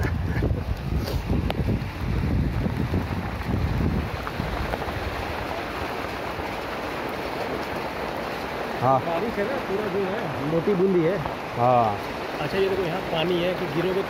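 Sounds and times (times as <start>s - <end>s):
wind buffeting microphone: 0.0s - 8.2s.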